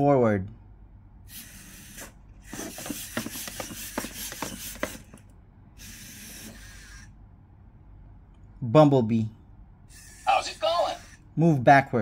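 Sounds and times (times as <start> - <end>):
plastic feet tapping on mat: 2.5 - 5.2
servo motors whirring: 5.8 - 7.1.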